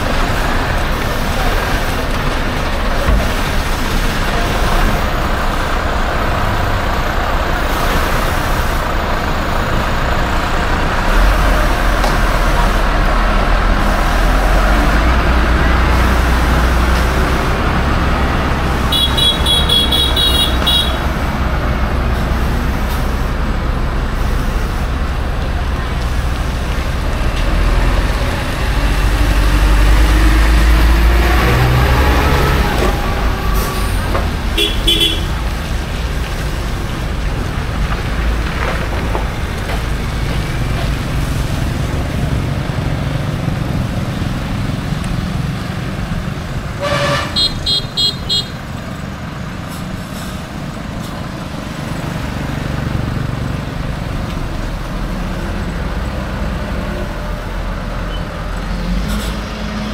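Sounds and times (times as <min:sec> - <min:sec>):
vehicle engine and road noise: 0:00.0 - 0:59.9
horns honking: 0:18.5 - 0:21.3, 0:32.0 - 0:35.5, 0:46.7 - 0:48.7.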